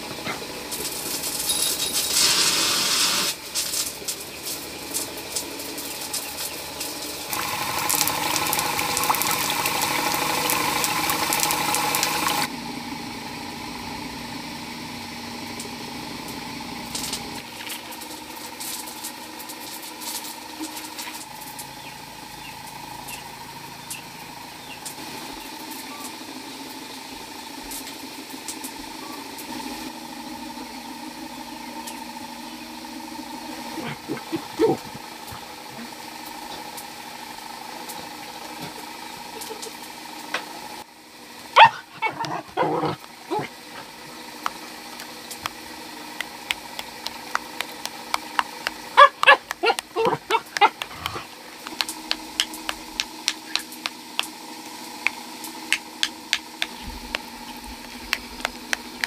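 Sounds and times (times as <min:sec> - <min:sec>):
hissing noise with clicks: 0:00.3 - 0:12.5, 0:44.4 - 0:59.0
engine running steadily: 0:03.2 - 0:59.0.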